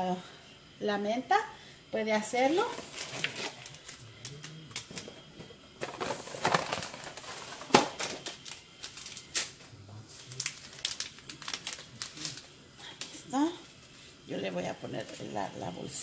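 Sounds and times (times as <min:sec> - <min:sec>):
paper rustling: 0:05.8 - 0:09.5.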